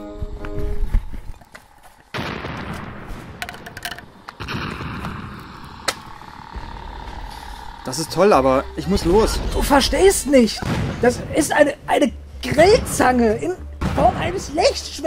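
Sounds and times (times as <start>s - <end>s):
lightsaber crackling hum: 0.0s - 13.6s
lightsaber switch-on burst: 2.1s - 10.9s
sharp electronic crack: 2.1s - 11.6s.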